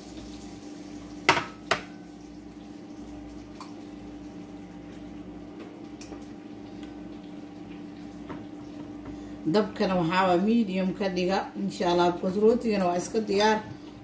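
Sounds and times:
bread frying sizzle: 0.0s - 14.0s
kitchenware clanking: 1.3s - 2.0s.

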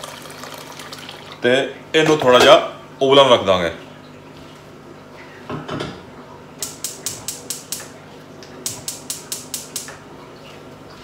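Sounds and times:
burner igniter clicking: 6.6s - 7.9s, 8.6s - 9.9s.

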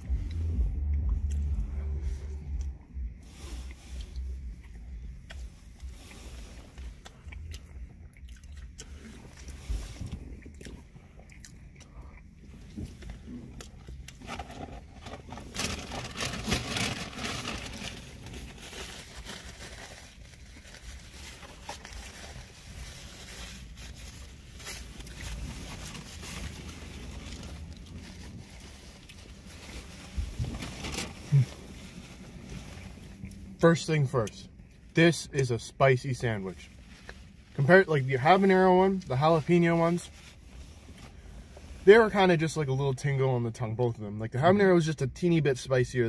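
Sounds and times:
people chewing food: 3.7s - 14.2s.

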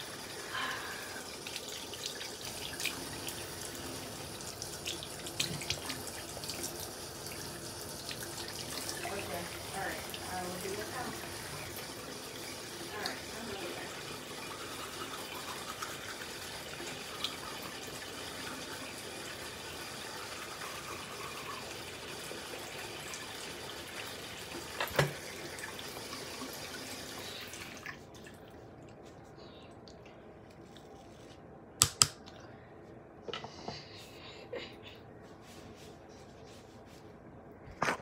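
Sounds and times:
water running from a tap: 0.0s - 28.5s.

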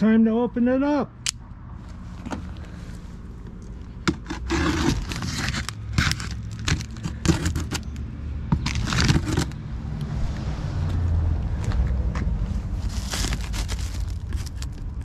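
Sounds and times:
plastic wrap crinkling and ripping: 4.5s - 7.5s, 8.6s - 9.6s, 12.8s - 15.0s.

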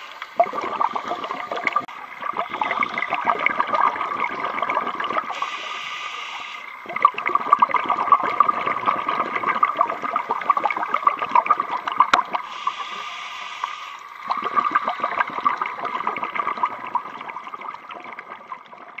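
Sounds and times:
exhaled bubbles gurgling underwater: 0.0s - 19.0s
regulator inhalation hiss: 5.3s - 6.9s, 12.3s - 14.2s.

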